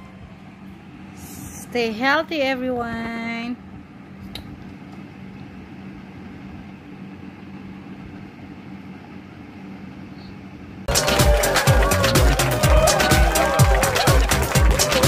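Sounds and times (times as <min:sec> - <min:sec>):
low machine hum: 0:00.0 - 0:15.0
loud music: 0:10.9 - 0:15.0.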